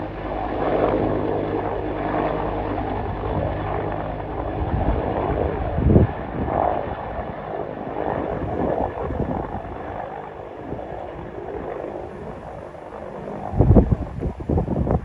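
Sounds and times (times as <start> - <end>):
helicopter rotor noise: 0.0 - 15.0
wind buffeting microphone: 0.0 - 15.0.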